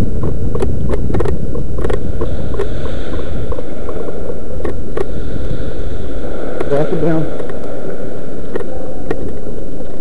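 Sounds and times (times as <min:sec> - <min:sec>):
loud rumbling on microphone: 0:00.0 - 0:10.0
sharp clicks: 0:00.2 - 0:04.0.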